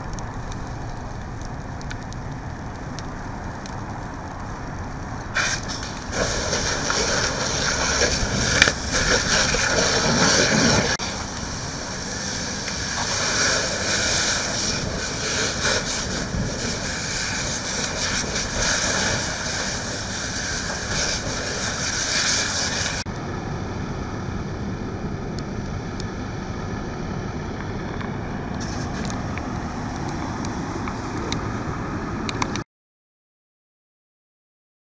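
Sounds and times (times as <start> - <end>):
hose water spray hissing: 0.0 - 23.1, 28.6 - 31.6
low steady rumble: 0.0 - 32.5.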